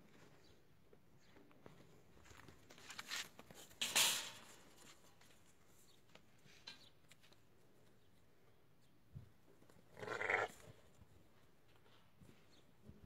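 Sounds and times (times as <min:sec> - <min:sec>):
hoof steps on dry dirt: 0:01.2 - 0:03.7.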